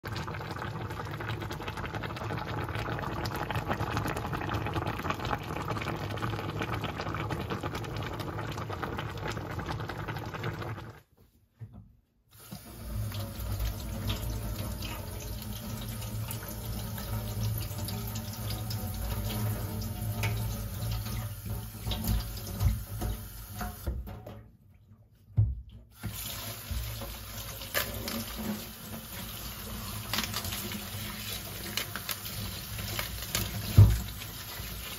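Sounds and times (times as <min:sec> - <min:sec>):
tap running into a steel sink: 0:18.6 - 0:24.3.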